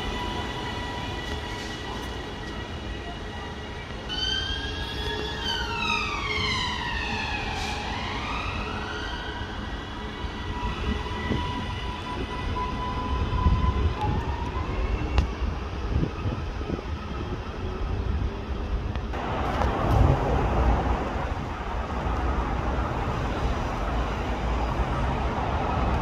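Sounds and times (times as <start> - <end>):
train electric drive whine: 0.0 - 20.1
train hum and low rumble: 0.0 - 26.0.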